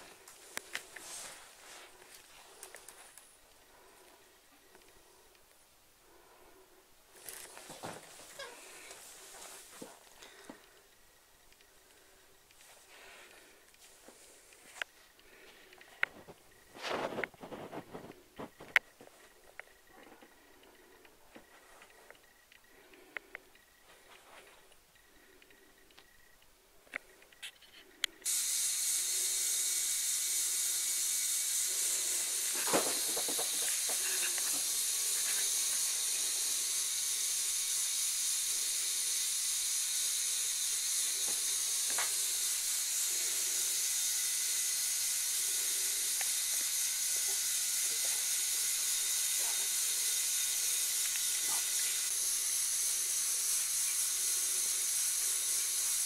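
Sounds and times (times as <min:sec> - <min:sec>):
toy motor and gears whirring: 0:00.0 - 0:05.3, 0:07.1 - 0:21.0, 0:27.1 - 0:56.0.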